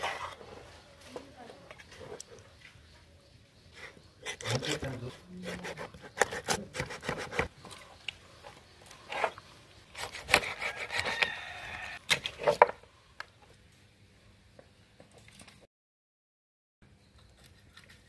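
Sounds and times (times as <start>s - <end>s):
knife sawing through fish: 4.2s - 7.5s, 10.0s - 11.6s.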